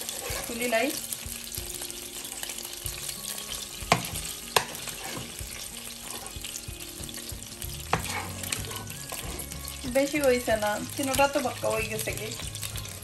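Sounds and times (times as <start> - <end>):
fish sizzling in hot oil: 0.0 - 13.0
metal spoon knocking against pan: 3.9 - 4.9.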